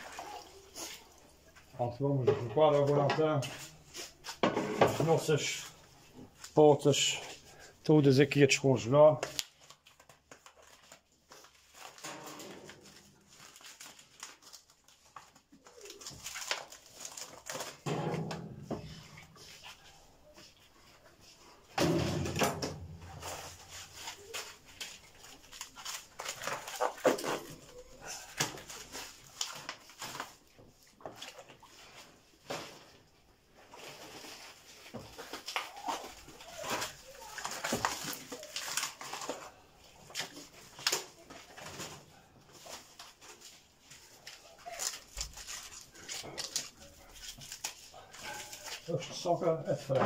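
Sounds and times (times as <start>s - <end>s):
plastic packaging rustling: 0.0s - 50.0s.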